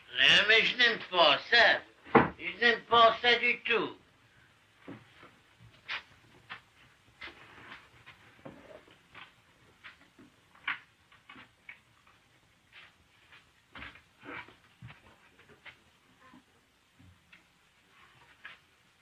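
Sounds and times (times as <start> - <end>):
faint clicks and soft knocks: 4.8 - 18.8.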